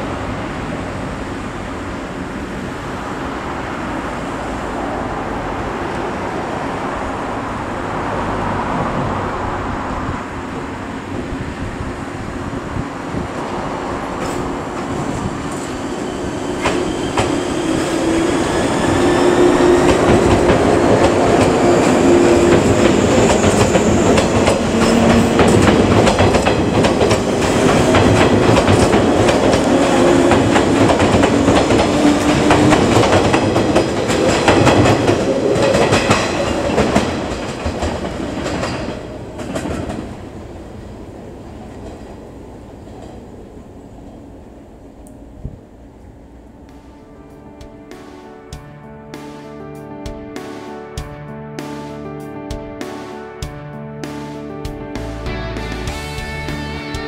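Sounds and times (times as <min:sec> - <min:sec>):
train wheels clacking on rail joints: 0:14.1 - 0:40.3.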